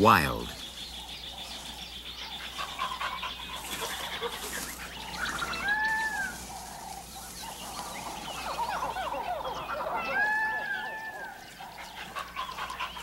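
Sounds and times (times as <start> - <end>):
short falling animal calls: 3.6 - 7.1
animal call rising and falling: 8.6 - 11.4.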